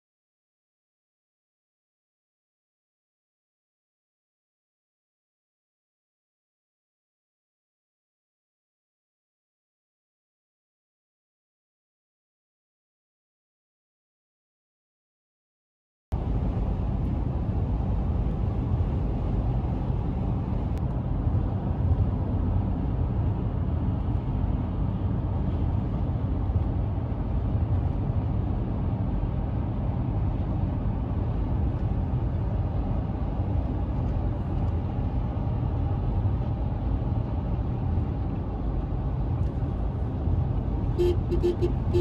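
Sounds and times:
car road and engine rumble: 0:16.1 - 0:42.0.

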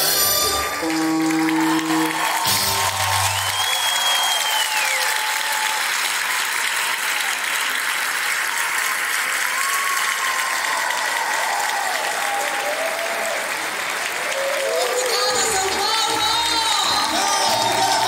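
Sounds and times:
audience applauding: 0:00.0 - 0:18.0
high sliding whistle: 0:00.8 - 0:05.2.

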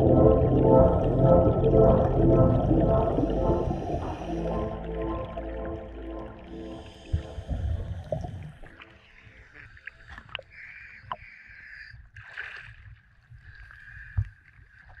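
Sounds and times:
background music: 0:00.0 - 0:08.0
sharp water splashes: 0:12.2 - 0:12.9.

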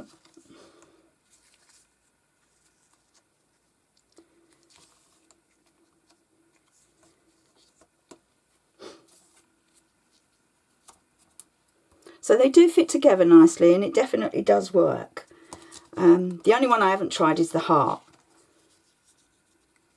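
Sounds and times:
jigsaw pieces tapping and scraping: 0:15.4 - 0:16.4.

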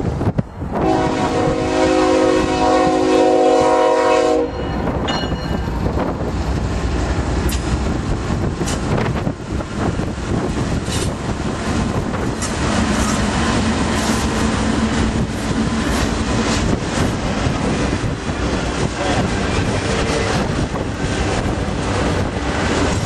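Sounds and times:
train rumbling past: 0:00.0 - 0:23.0
locomotive air horn: 0:00.7 - 0:04.8.

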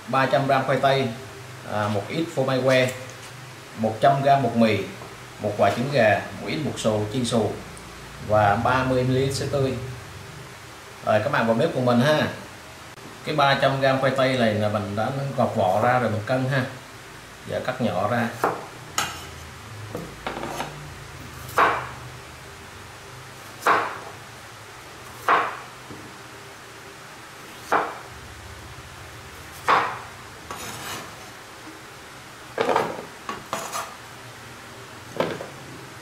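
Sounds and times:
soft scraping and rubbing: 0:30.5 - 0:31.4, 0:33.6 - 0:34.0.

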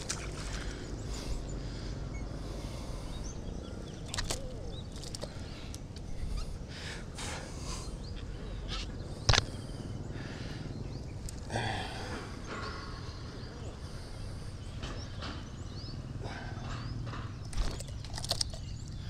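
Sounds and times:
hand splashing in shallow water: 0:00.0 - 0:00.8
wet weeds rustling: 0:00.0 - 0:01.3, 0:04.1 - 0:05.6
faint bird chirps: 0:00.0 - 0:19.0.

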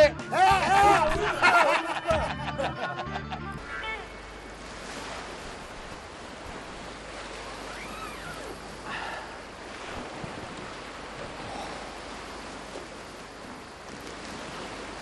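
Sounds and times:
wind: 0:00.0 - 0:15.0
waves washing on shore: 0:03.6 - 0:15.0
faint whistle-like sound: 0:07.6 - 0:08.6.

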